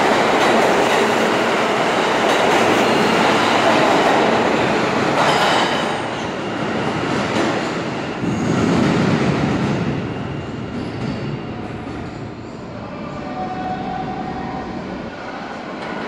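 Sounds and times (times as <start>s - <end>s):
subway train rumbling: 0.0s - 16.0s
train wheels clattering: 5.0s - 9.9s.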